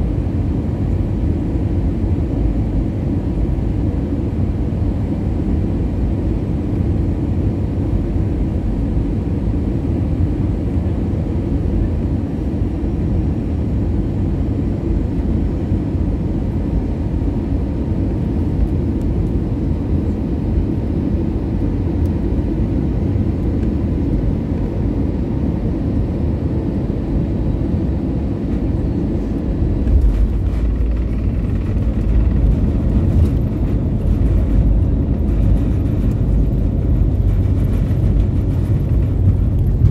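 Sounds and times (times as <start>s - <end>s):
aircraft engine and airflow noise: 0.0s - 39.9s
runway rollout rumble and rattling: 27.6s - 39.9s.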